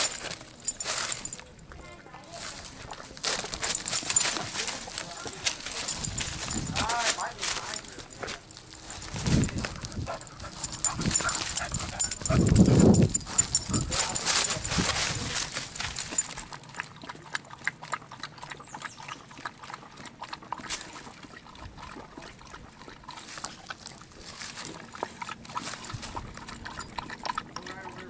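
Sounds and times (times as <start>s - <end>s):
rustling: 0.0s - 1.5s, 2.4s - 16.4s
dog lapping water: 2.6s - 28.0s.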